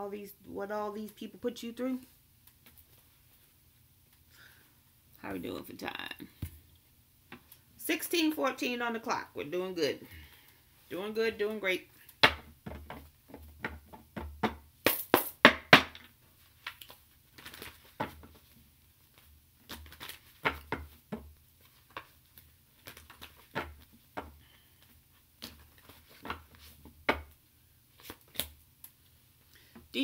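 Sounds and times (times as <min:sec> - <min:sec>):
cards shuffling: 0:19.1 - 0:20.8, 0:25.4 - 0:26.9, 0:27.9 - 0:28.9.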